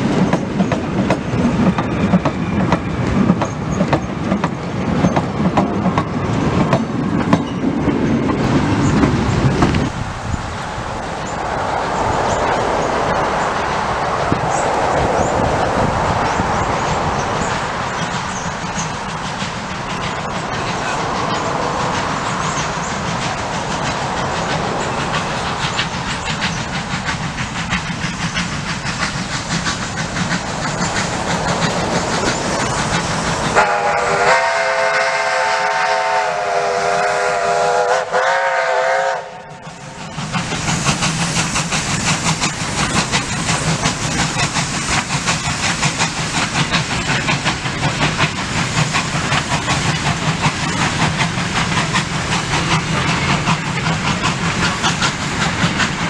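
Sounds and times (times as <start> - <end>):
steam locomotive passing: 0.0 - 56.0
steam whistle blasts: 33.6 - 39.6.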